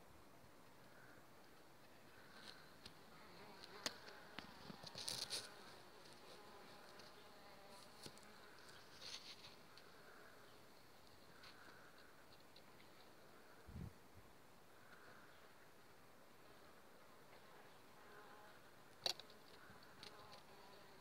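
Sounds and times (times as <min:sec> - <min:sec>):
bee buzzing in flight: 0:03.0 - 0:10.4, 0:19.4 - 0:21.0
brief rustles: 0:03.6 - 0:06.4.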